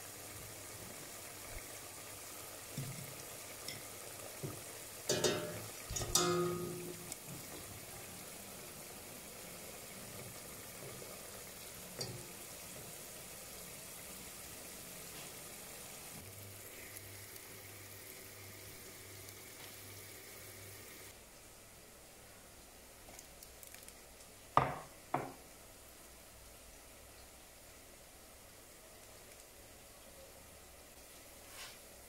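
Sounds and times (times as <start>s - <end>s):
wire skimmer clinking on pot: 5.1s - 7.2s.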